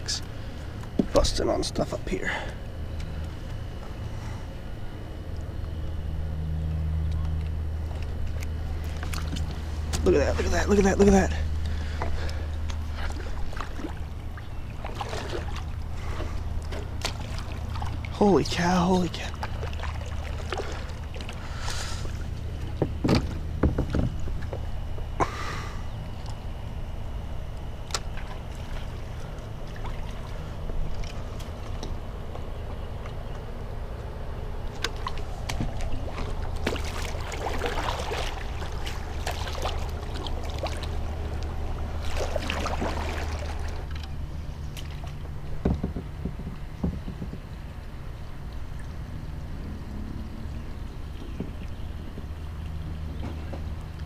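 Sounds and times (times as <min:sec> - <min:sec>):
steady low hum: 0:00.0 - 0:54.0
paddle strokes in water: 0:07.4 - 0:18.4, 0:19.0 - 0:25.4, 0:34.7 - 0:49.1
paddle knocking against hull: 0:22.6 - 0:24.6, 0:44.8 - 0:47.6, 0:51.2 - 0:52.3.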